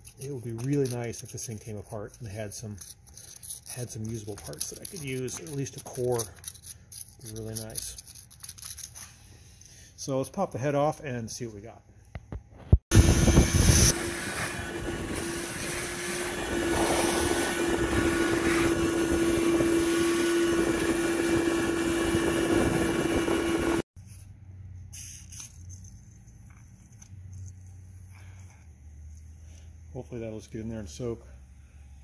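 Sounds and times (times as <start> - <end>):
shop vacuum running: 12.9 - 23.9.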